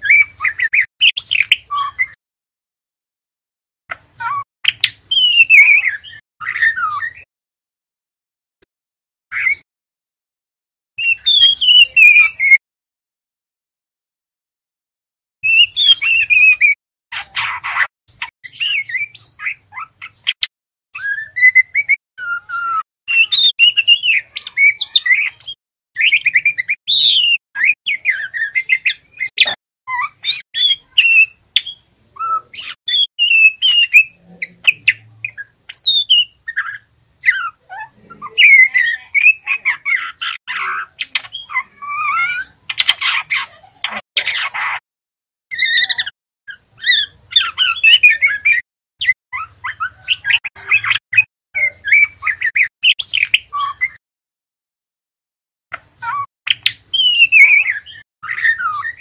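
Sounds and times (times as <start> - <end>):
bird whistling and chirping: 0.0 - 2.2, 4.2 - 7.3, 9.3 - 9.6, 11.0 - 12.6, 15.4 - 44.8, 45.5 - 54.0, 56.0 - 59.0
harsh scratchy bird chatter: 15.5 - 20.5.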